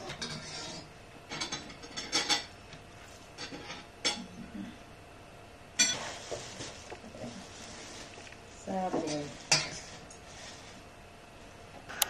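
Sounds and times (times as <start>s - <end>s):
cutlery scraping dishes: 0.0s - 2.5s, 3.4s - 4.3s, 5.8s - 6.4s, 9.0s - 10.2s.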